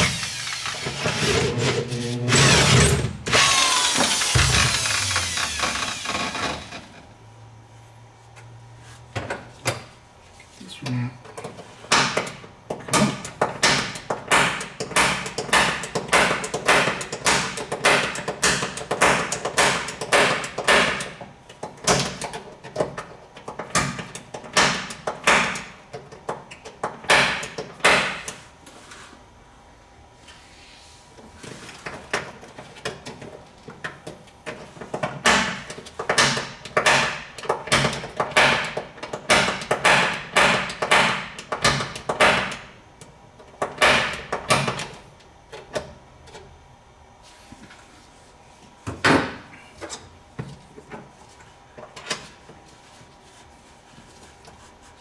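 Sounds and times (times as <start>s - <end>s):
fist pounding on sheet steel: 35.2s - 42.6s.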